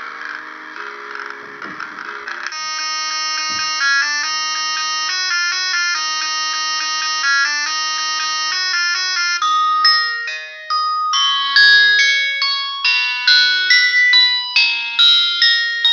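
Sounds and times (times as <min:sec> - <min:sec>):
buzzy synthesizer melody: 0:09.3 - 0:14.5.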